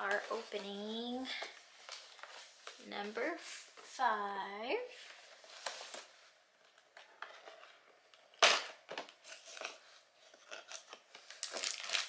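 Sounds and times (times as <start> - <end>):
cardboard crackling and tearing: 10.4 - 12.0.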